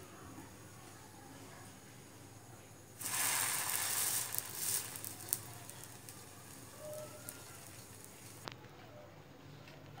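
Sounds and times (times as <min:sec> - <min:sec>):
sandwich sizzling on a griddle: 0:02.9 - 0:08.5
crackles: 0:03.0 - 0:08.8.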